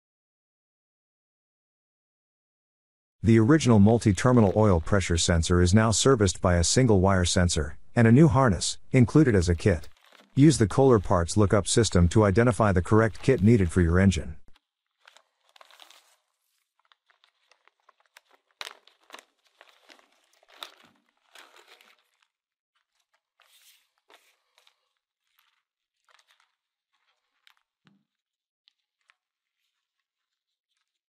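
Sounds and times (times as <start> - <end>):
wiring harness rustling: 3.5 - 5.4, 9.2 - 31.0
plastic bag crinkling: 3.7 - 5.0, 9.2 - 31.0.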